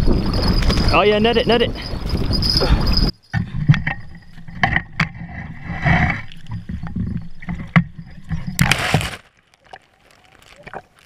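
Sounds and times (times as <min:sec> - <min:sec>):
water splashing and sloshing: 0:03.8 - 0:11.0.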